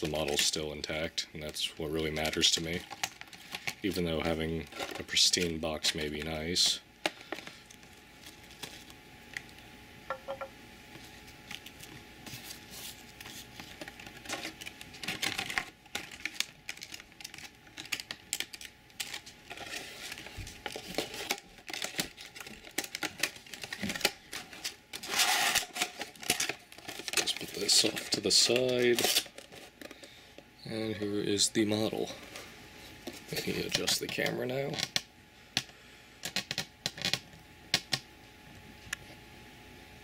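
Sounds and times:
plastic packaging clicks and crackles: 0:00.0 - 0:09.6, 0:13.1 - 0:30.5, 0:33.0 - 0:38.0
packaging rustle: 0:02.0 - 0:09.0, 0:11.4 - 0:30.2.

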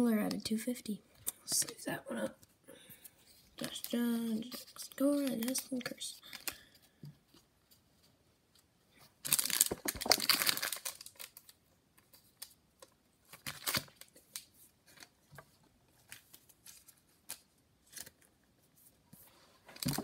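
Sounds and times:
cards rustling and clicking: 0:03.0 - 0:07.8, 0:08.6 - 0:18.4, 0:19.8 - 0:20.0
foil wrapper crinkling and tearing: 0:09.2 - 0:11.6, 0:13.3 - 0:14.5.

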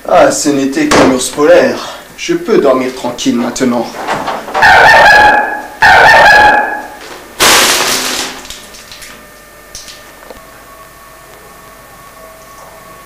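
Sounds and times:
harsh burst of noise: 0:07.4 - 0:08.5.

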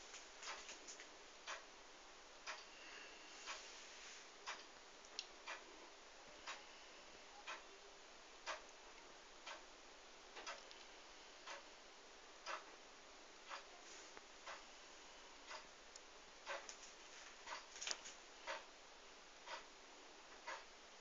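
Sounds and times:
clock ticking faintly: 0:00.0 - 0:01.7, 0:02.4 - 0:03.6, 0:04.4 - 0:05.7, 0:06.4 - 0:07.8, 0:08.4 - 0:09.8, 0:10.4 - 0:11.8, 0:12.4 - 0:12.8, 0:13.4 - 0:13.8, 0:14.4 - 0:14.8, 0:15.4 - 0:18.8, 0:19.4 - 0:21.0.

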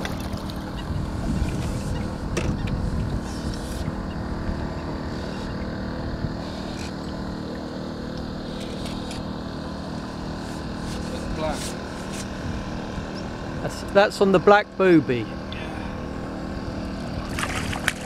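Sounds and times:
water slapping metal boat: 0:00.0 - 0:05.8, 0:16.9 - 0:18.0
wind on microphone: 0:00.0 - 0:06.5.

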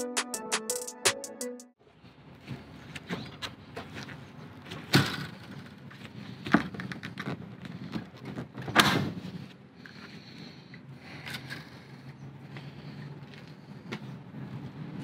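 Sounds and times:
plastic clicks and creaks: 0:06.4 - 0:08.8.

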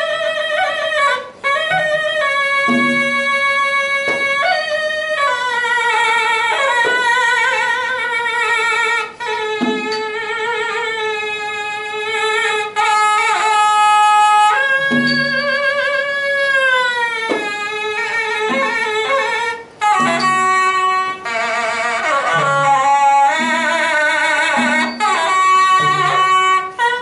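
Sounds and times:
oboe solo melody: 0:00.0 - 0:27.0
sharp drum strikes: 0:01.6 - 0:04.7, 0:09.4 - 0:10.2, 0:14.6 - 0:16.0, 0:17.2 - 0:21.4, 0:22.1 - 0:26.6
low drum strokes: 0:25.8 - 0:26.3.

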